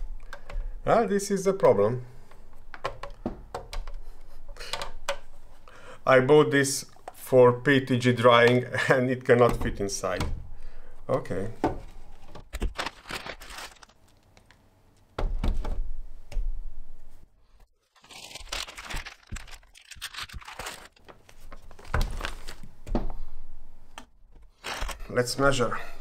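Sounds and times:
plastic bags crinkling: 0:12.6 - 0:14.6, 0:17.8 - 0:22.7, 0:24.5 - 0:25.2.

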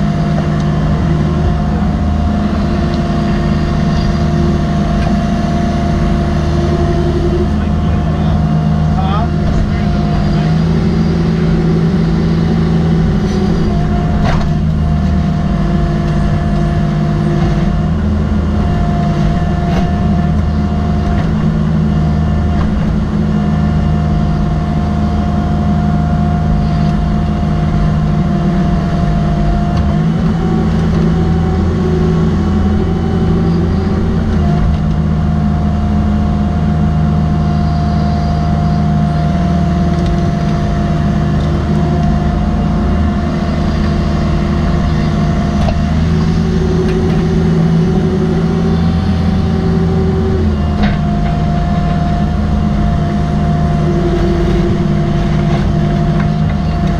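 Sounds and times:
excavator diesel engine running: 0:00.0 - 0:56.9
hydraulic whine: 0:00.0 - 0:56.9.

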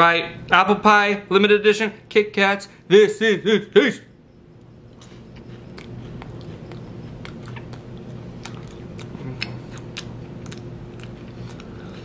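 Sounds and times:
chewing crunchy wafer: 0:04.6 - 0:12.0.

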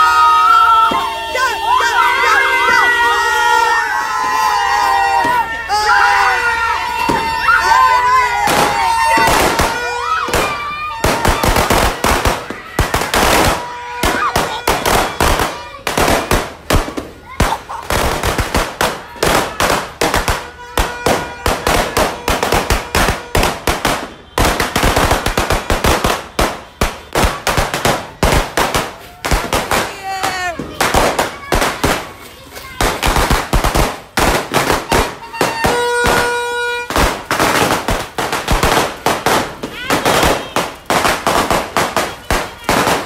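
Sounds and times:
firecrackers banging: 0:00.0 - 0:43.0.

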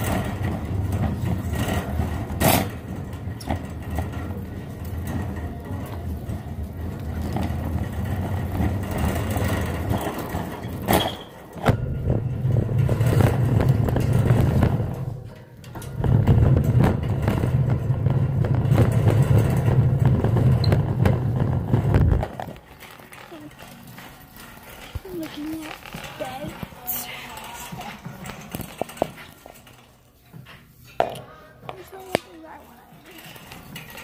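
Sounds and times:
shopping cart wheels rumbling: 0:00.0 - 0:34.0
small clicks and rattles: 0:12.4 - 0:31.0, 0:31.7 - 0:34.0.

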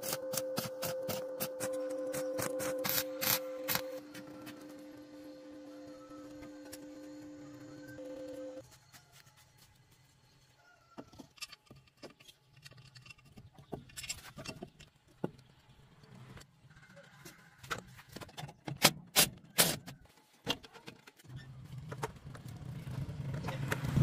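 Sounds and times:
motorbike engine approaching: 0:21.4 - 0:24.0.

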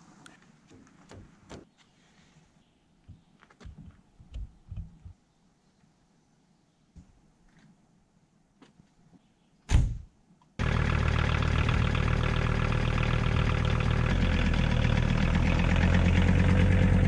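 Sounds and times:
van door slamming: 0:09.7 - 0:10.1
van engine running: 0:10.6 - 0:17.0.

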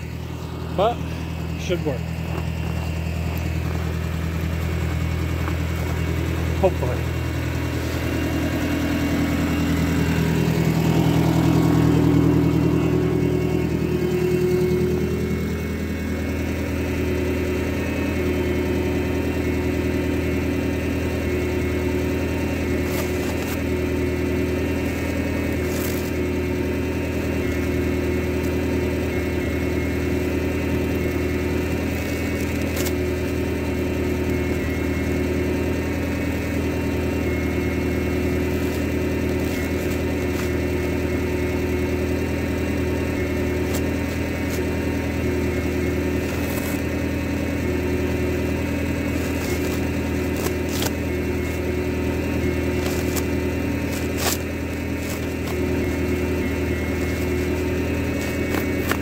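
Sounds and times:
skid steer engine idling: 0:00.0 - 0:59.0
knife cutting plastic wrap: 0:50.4 - 0:51.0, 0:52.8 - 0:55.6.

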